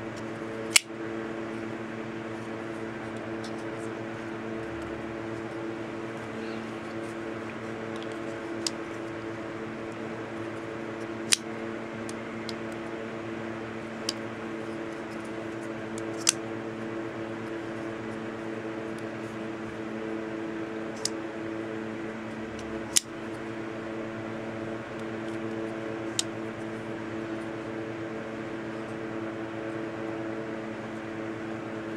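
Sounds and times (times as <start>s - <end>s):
steady humming drone: 0.0s - 31.9s
folding knife blade clicking: 0.7s - 0.9s.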